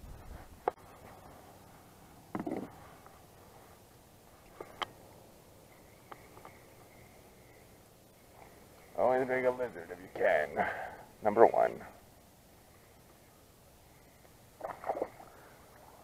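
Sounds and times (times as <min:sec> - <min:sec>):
fish splashing into water: 0:14.6 - 0:15.5.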